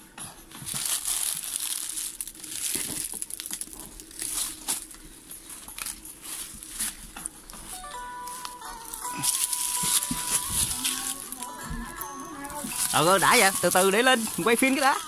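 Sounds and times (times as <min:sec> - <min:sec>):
dry leaves and twigs crackling: 0:00.6 - 0:15.0
twigs snapping: 0:08.4 - 0:12.1.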